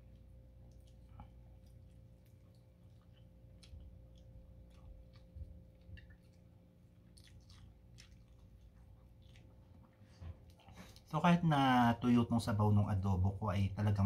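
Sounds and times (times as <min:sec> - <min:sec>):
faint chewing: 0:00.0 - 0:11.2.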